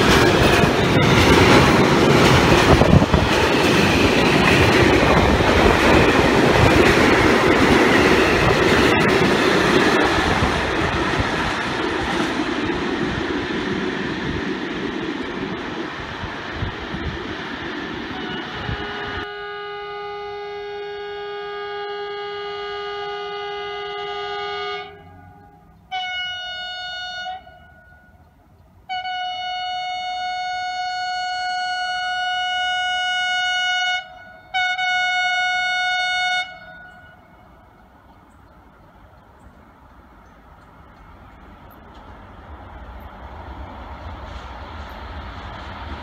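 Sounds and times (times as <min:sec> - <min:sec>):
train wheels on rails: 0:00.0 - 0:20.5, 0:35.6 - 0:46.0
high-pitched train horn blasts: 0:18.1 - 0:28.2, 0:28.9 - 0:37.6
steady train horn: 0:18.1 - 0:28.2, 0:28.9 - 0:37.6.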